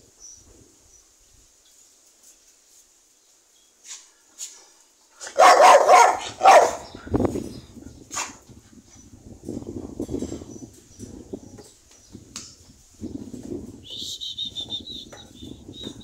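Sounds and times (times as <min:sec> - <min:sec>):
dog barking loudly: 0:05.2 - 0:07.0.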